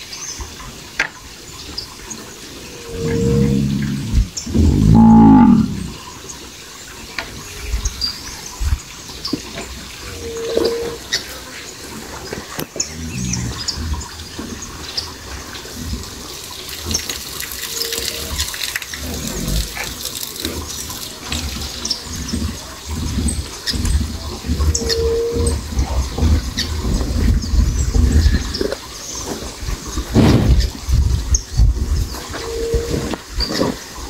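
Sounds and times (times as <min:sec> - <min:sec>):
low rumbling background: 0:02.6 - 0:06.1
cow mooing: 0:02.8 - 0:06.0.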